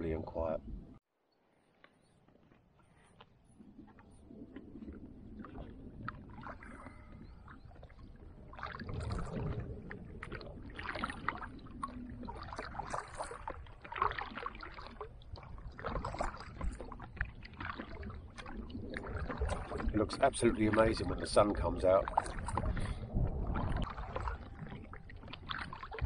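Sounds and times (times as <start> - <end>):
water lapping against kayak hull: 2.4 - 26.0
low rumble: 22.0 - 26.0.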